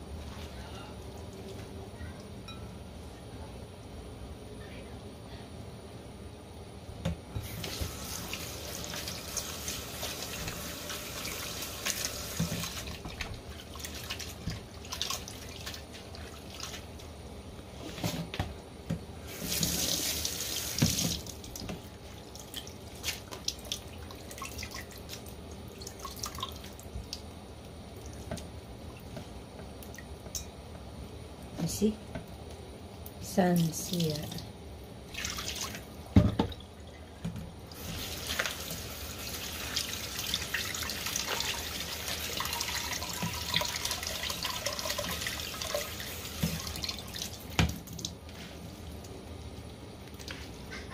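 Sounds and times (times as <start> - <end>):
water splashes and drips: 7.5 - 17.1, 19.4 - 30.4, 35.1 - 50.4
tap running into a sink: 11.9 - 13.4, 20.7 - 21.8, 47.5 - 47.9.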